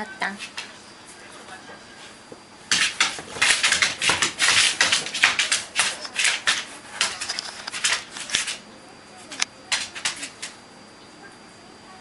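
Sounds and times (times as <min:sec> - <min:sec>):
dog scuffling with toy on floor: 0:01.4 - 0:08.6.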